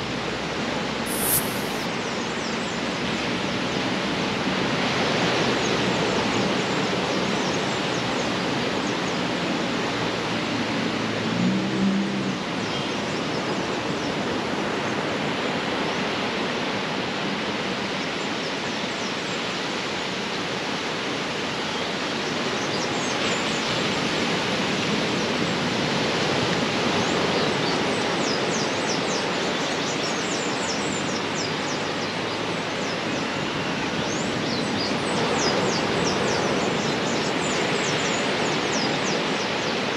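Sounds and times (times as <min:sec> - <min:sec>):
high short falling chirps: 0:01.1 - 0:01.9.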